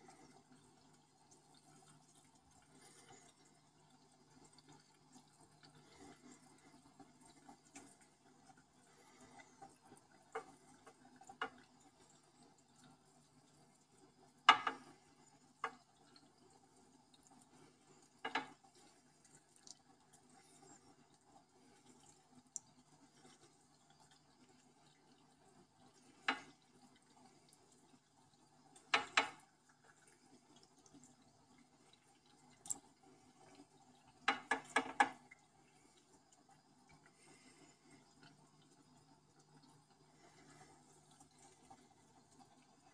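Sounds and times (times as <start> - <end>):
aquarium filter hum: 0.0 - 42.9
water splashes and drips: 0.0 - 42.9.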